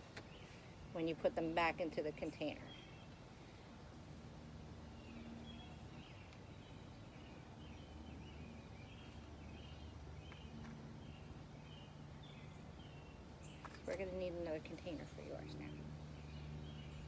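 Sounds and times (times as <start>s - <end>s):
low steady hum: 0.0s - 17.0s
bird chirping: 4.9s - 17.0s
faint light ticks: 6.2s - 6.4s.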